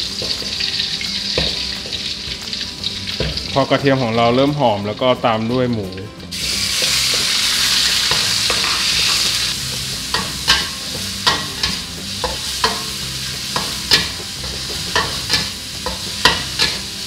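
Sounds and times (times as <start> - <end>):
meat sizzling in hot oil: 0.0 - 17.0
metal spatula scraping a wok: 6.4 - 17.0.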